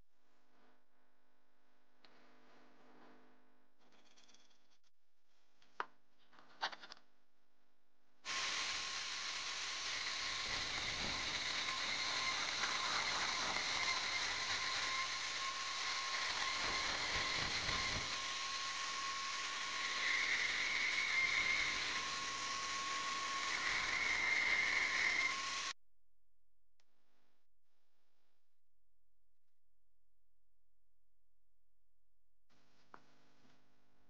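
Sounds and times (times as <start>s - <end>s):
band saw cutting metal: 8.3s - 25.8s.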